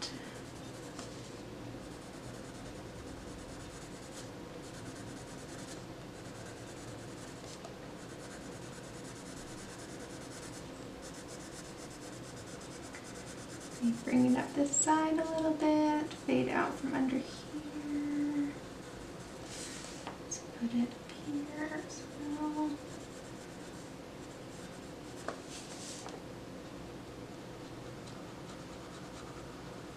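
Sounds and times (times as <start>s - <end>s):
pencil scratching on paper: 1.8s - 14.8s, 22.2s - 25.3s, 28.4s - 29.7s.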